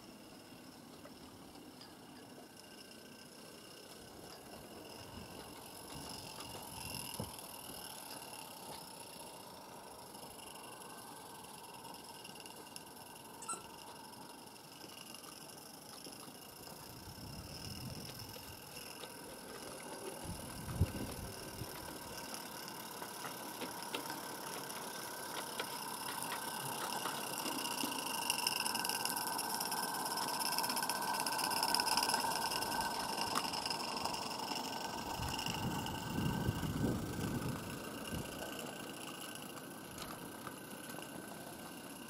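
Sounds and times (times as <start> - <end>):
steam locomotive hissing and clattering: 15.9 - 42.0.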